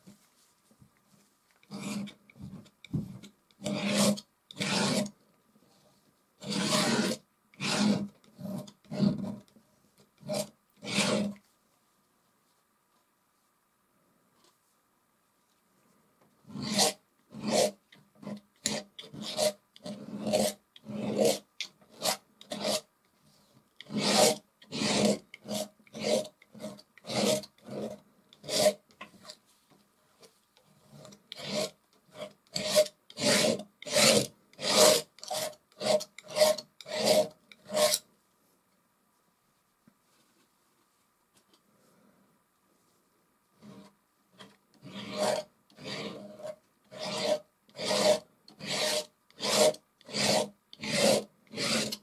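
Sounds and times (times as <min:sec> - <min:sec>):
palette knife scraping canvas: 0:01.7 - 0:09.4, 0:10.2 - 0:11.4, 0:16.4 - 0:29.4, 0:30.2 - 0:38.1, 0:43.6 - 0:52.0.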